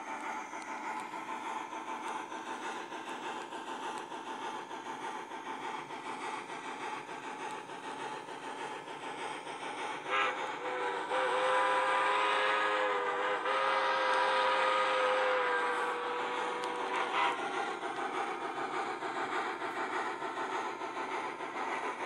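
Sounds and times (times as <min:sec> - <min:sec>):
steady hiss: 0:00.0 - 0:22.0
model train steam whistle: 0:10.0 - 0:17.6.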